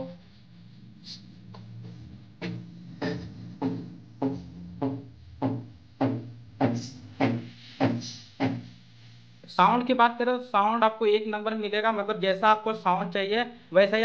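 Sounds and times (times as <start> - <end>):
music through loudspeakers: 0.0 - 8.8
steady bass line: 0.0 - 9.8.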